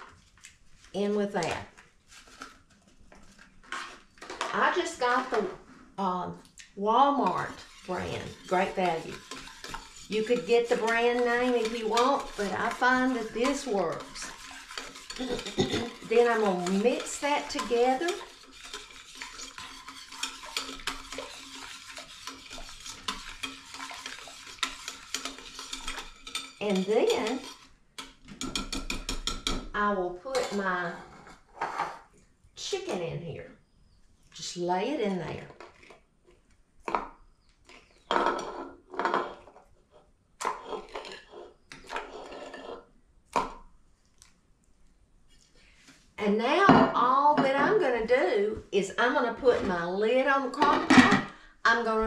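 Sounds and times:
wire whisk scraping a pot: 3.3s - 5.6s, 7.1s - 29.5s, 40.4s - 42.9s.

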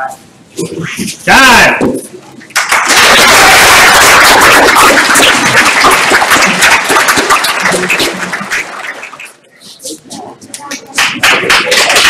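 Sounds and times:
spectators clapping: 2.5s - 9.4s, 10.6s - 12.0s.

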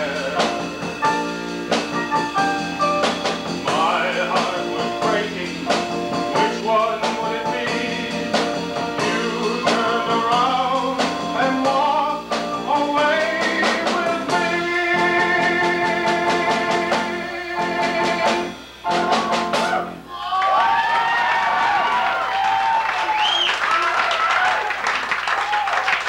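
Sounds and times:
man singing: 0.0s - 0.8s, 3.6s - 18.5s
live band with drums and guitar: 0.0s - 20.1s.

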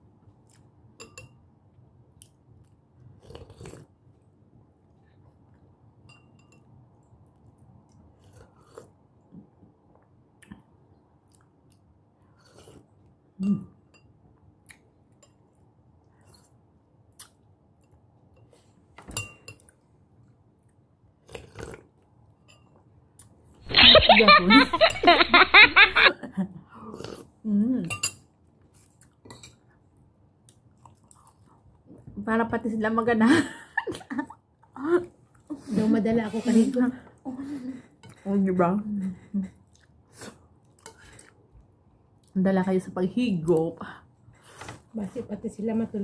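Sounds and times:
person chewing: 2.2s - 3.9s, 7.5s - 9.0s, 20.7s - 22.1s, 30.4s - 32.0s.

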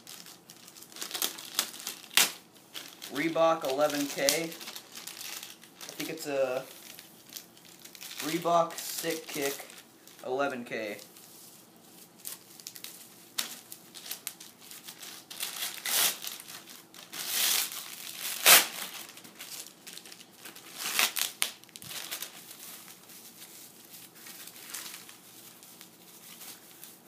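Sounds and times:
plastic wrapping crinkling and tearing: 0.0s - 27.0s.

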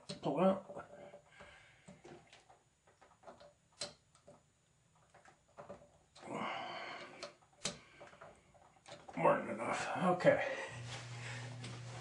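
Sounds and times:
breathy exhale: 1.3s - 2.0s, 6.2s - 8.1s
clicks of wire terminals: 3.0s - 4.4s, 7.1s - 9.2s.

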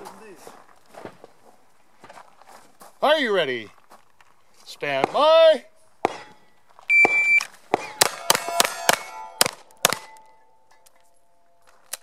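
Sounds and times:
steel target clanging: 6.0s - 6.5s
pistol shots: 7.1s - 10.2s.

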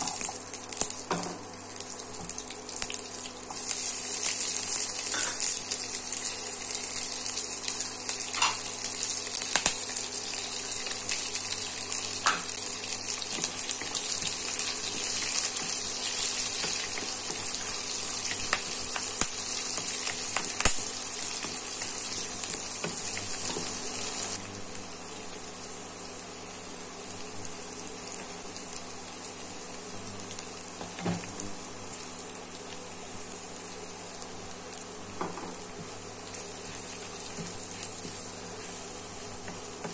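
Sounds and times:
food sizzling in hot oil: 0.0s - 39.9s.

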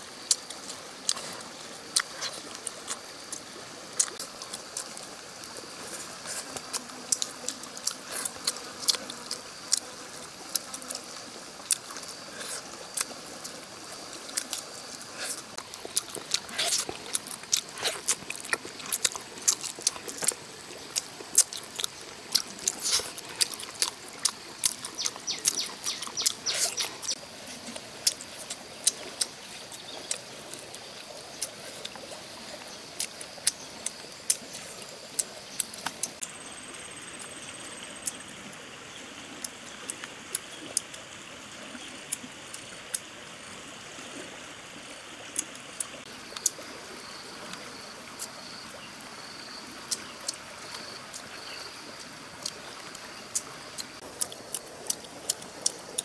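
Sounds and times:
faint insect buzz: 0.0s - 21.0s
mouth clicks and lip smacks: 52.4s - 56.0s.

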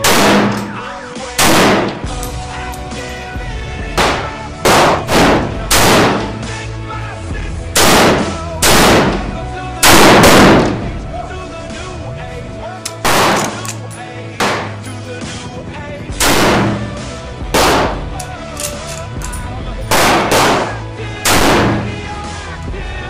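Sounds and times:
rifle shots: 0.0s - 0.8s, 1.4s - 2.1s, 4.0s - 6.4s, 7.8s - 10.8s, 13.0s - 13.8s, 14.4s - 14.8s, 16.2s - 17.0s, 17.6s - 18.7s, 19.9s - 22.0s
background music with held tones: 0.0s - 23.0s.

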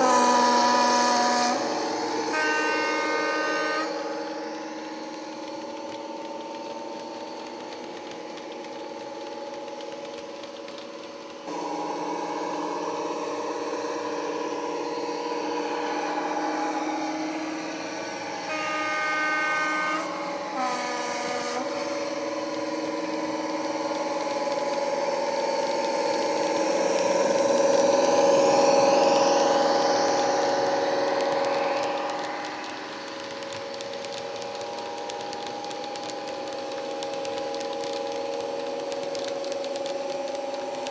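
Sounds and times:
two-tone train horn: 0.0s - 5.4s, 11.5s - 24.7s
model train diesel engine sound: 0.0s - 40.9s.

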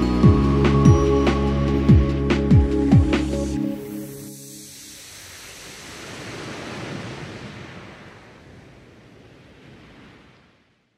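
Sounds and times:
soft surf-like swell of noise: 3.4s - 10.8s.

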